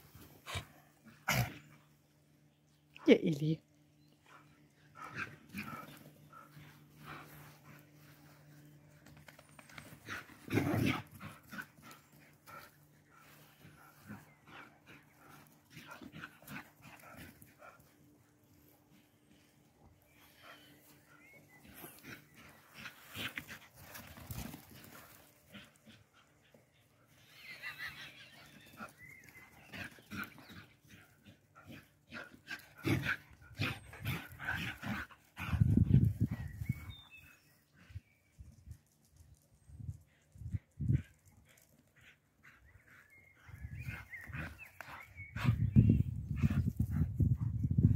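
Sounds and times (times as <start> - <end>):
dog panting: 4.3 - 8.5
dogs vocalizing: 25.2 - 35.8, 42.0 - 47.1.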